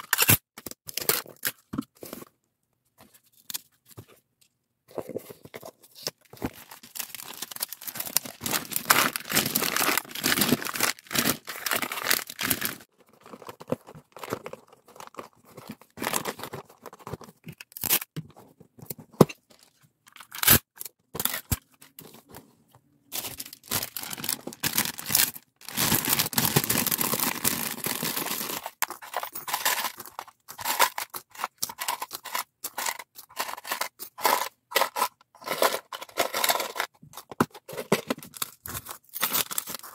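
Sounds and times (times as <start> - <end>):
cardboard and packing rustling: 4.9 - 17.6, 21.2 - 31.0.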